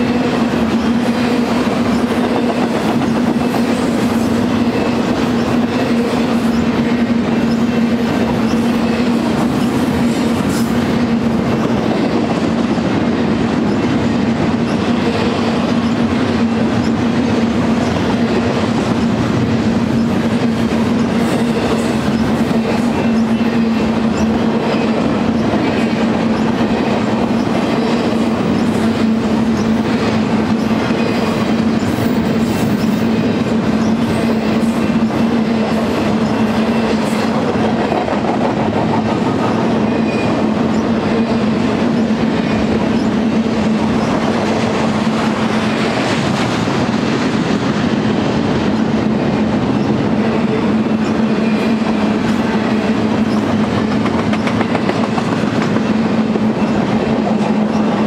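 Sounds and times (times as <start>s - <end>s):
freight train wheels rumbling on rail: 0.0s - 58.0s.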